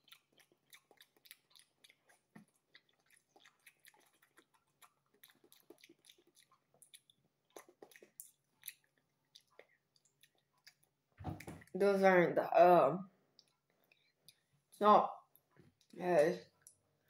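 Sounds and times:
person chewing wetly: 0:00.0 - 0:11.8, 0:13.3 - 0:17.0.

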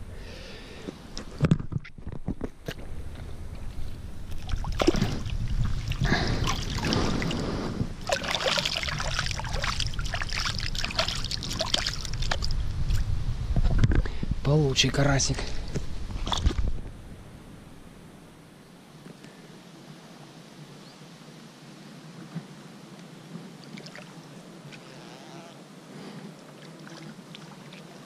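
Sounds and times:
water sloshing and splashing: 0:04.2 - 0:13.0, 0:16.2 - 0:16.8, 0:23.6 - 0:24.8, 0:26.4 - 0:28.0
hands splashing in water: 0:04.4 - 0:07.4, 0:08.0 - 0:12.5.

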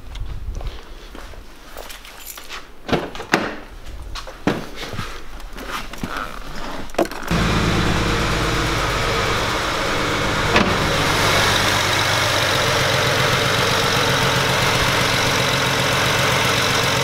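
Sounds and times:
car engine idling with misfire: 0:07.3 - 0:17.0.

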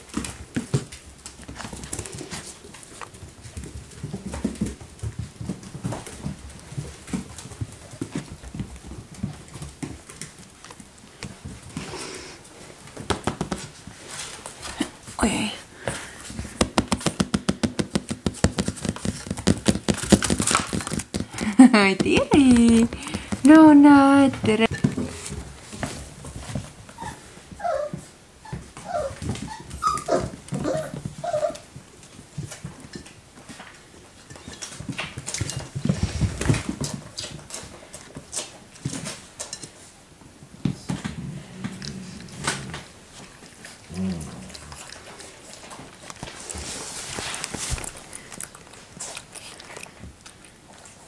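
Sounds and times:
dogs scuffling in play: 0:00.0 - 0:51.0
puppy claws tapping on hard floor: 0:13.0 - 0:13.8, 0:15.9 - 0:23.6
puppies yipping and whimpering: 0:27.0 - 0:31.6.

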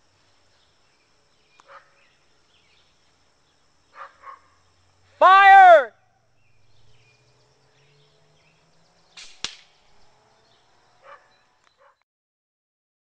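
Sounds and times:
muffled air rifle shot: 0:09.1 - 0:09.8
pellet impact snap: 0:09.2 - 0:09.8.

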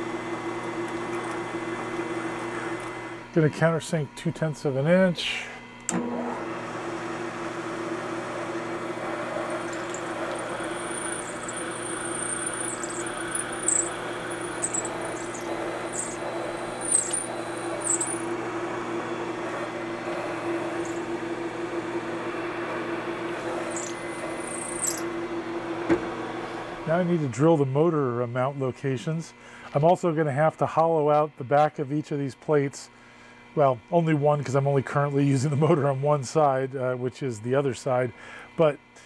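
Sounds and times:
milling machine spindle running: 0:00.1 - 0:03.4, 0:05.9 - 0:27.8
high-pitched cutter squeals: 0:09.2 - 0:18.4, 0:23.3 - 0:25.1.

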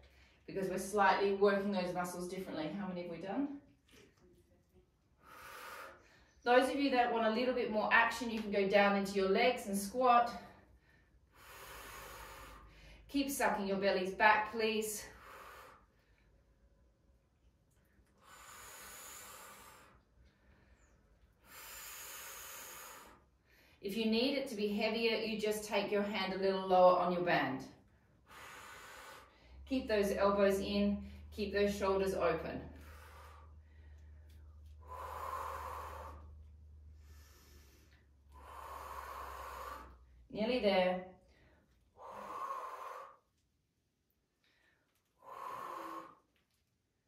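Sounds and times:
low steady hum: 0:00.0 - 0:47.0
person breathing hard: 0:05.2 - 0:06.4, 0:10.5 - 0:13.1, 0:15.0 - 0:16.4, 0:18.2 - 0:23.8, 0:28.1 - 0:29.6, 0:32.7 - 0:40.3, 0:41.2 - 0:43.4, 0:44.4 - 0:46.4
person exhaling: 0:34.8 - 0:36.4, 0:37.0 - 0:40.1, 0:42.0 - 0:43.2, 0:45.2 - 0:46.2.

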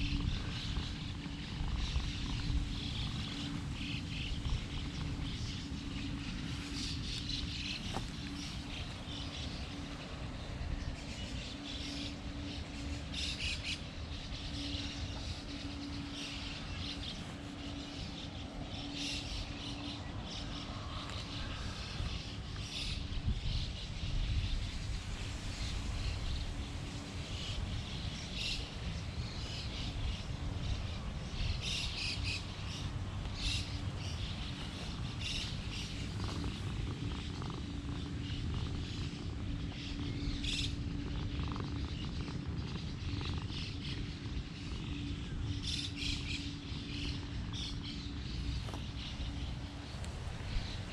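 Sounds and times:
faint constant hum: 0:00.0 - 0:50.9
low outdoor rumble: 0:00.0 - 0:50.9
small birds chirping: 0:00.0 - 0:50.9.

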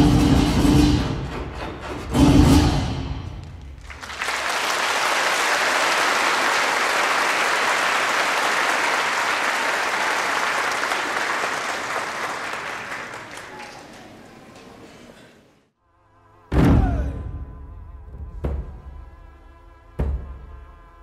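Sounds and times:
audience applause: 0:03.6 - 0:14.9.

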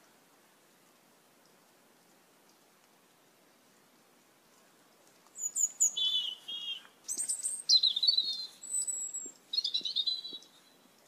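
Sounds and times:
starlings calling: 0:05.4 - 0:10.7.

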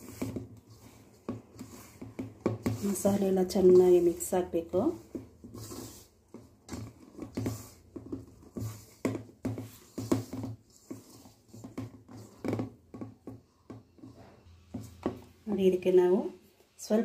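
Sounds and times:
hand rubbing food in steel bowl: 0:00.0 - 0:13.0.

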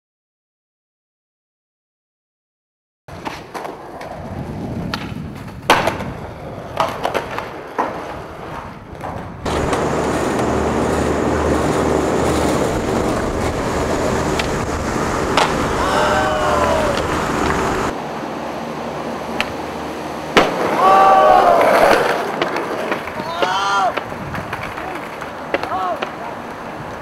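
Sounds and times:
skateboard clacking on ground: 0:03.1 - 0:18.0, 0:19.2 - 0:19.7, 0:20.4 - 0:27.0
skateboard wheels rolling on concrete: 0:03.1 - 0:27.0
loud steady rumble: 0:09.5 - 0:21.1.

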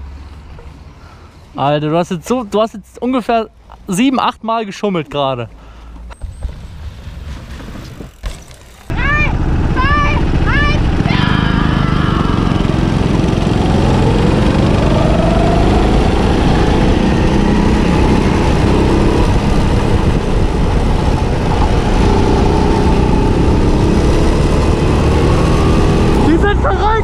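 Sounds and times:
wind and road noise: 0:00.0 - 0:27.0
go-kart engine running: 0:07.6 - 0:27.0.

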